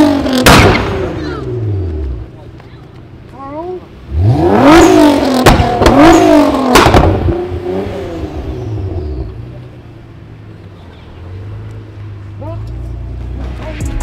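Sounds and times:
exhaust bangs: 0.0s - 2.5s, 3.9s - 9.8s
car engine revving: 0.0s - 14.0s.

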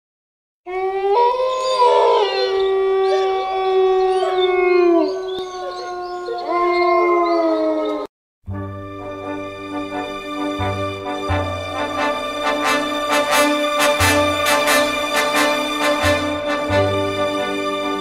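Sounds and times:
wolves howling: 0.7s - 8.1s.

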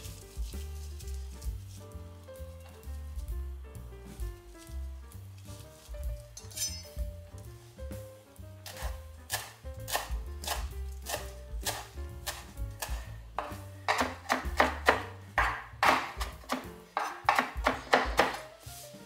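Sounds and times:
background music: 0.0s - 19.0s
knife chopping on wooden board: 8.6s - 18.5s.

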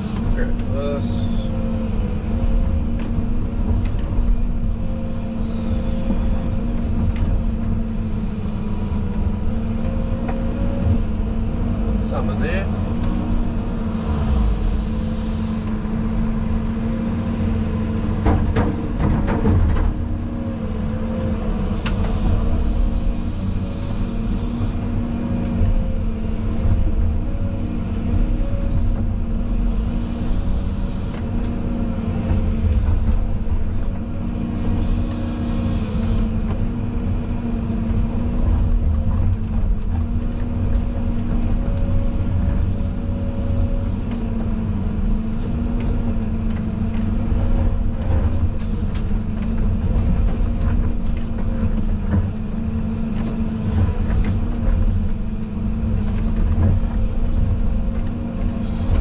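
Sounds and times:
excavator engine droning: 0.0s - 59.0s.

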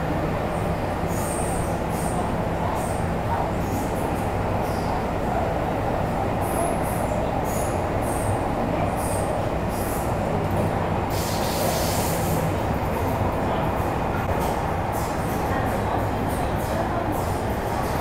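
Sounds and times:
train wheels rumbling on rail: 0.0s - 18.0s
hiss: 11.1s - 12.4s.

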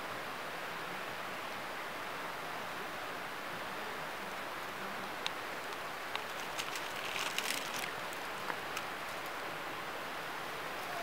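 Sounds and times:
steady outdoor hiss: 0.0s - 11.0s
dry leaves crackling: 6.1s - 9.4s.

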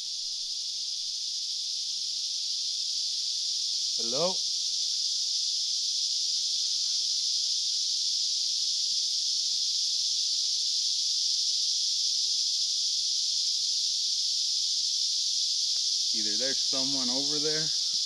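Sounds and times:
insect chorus buzzing: 0.0s - 18.0s.

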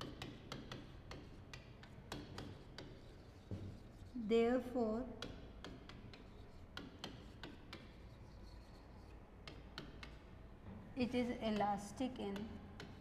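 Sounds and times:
chalk tapping on chalkboard: 0.0s - 10.4s, 11.1s - 13.0s.

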